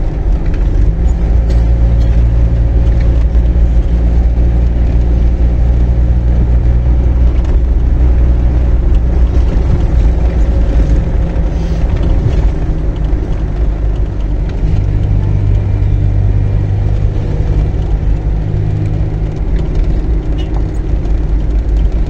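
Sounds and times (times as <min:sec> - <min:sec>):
engine drone: 0:00.0 - 0:22.0
road rumble: 0:00.0 - 0:22.0.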